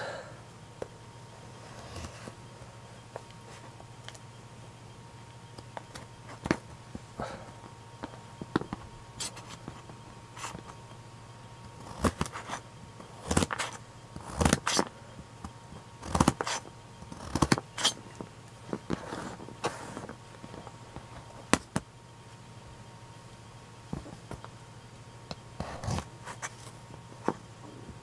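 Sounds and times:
knife chopping carrot on plastic: 16.0 - 18.0.

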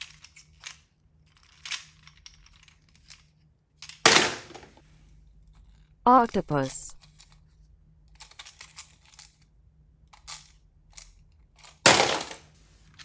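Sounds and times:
plastic toy clattering into bowl: 11.6 - 12.4.

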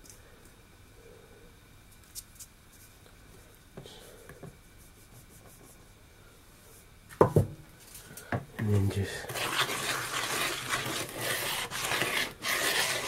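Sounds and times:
dry flour mixture scraping and tapping: 8.6 - 13.0.

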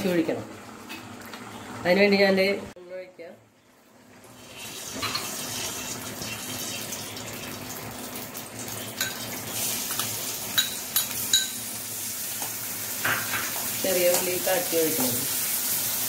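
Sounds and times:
hot oil hissing: 8.8 - 16.0
spoon clicking against pan: 9.9 - 11.6.

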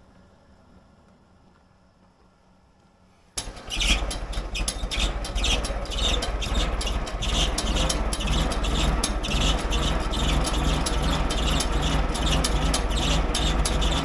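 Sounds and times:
crawler tractor engine running: 3.4 - 14.0.

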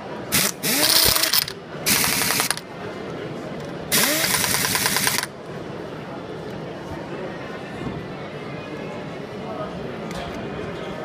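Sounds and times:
air impact wrench hammering: 0.3 - 2.6, 3.9 - 5.3.

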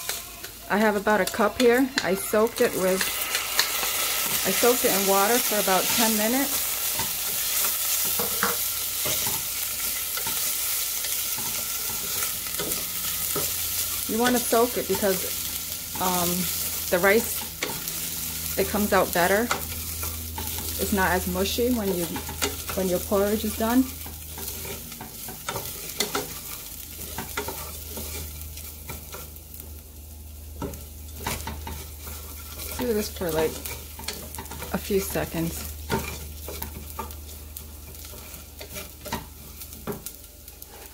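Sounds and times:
low steady hum: 0.0 - 40.6
rice sizzling in hot oil: 0.0 - 40.9
wooden spoon scraping rice: 21.9 - 29.2, 31.2 - 34.8, 35.6 - 40.9.

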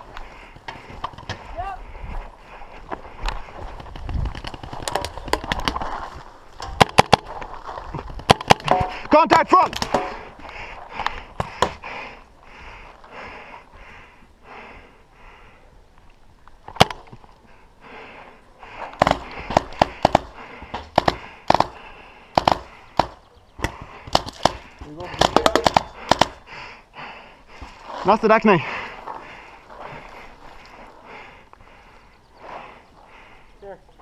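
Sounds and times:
paintball markers firing: 19.0 - 26.4.

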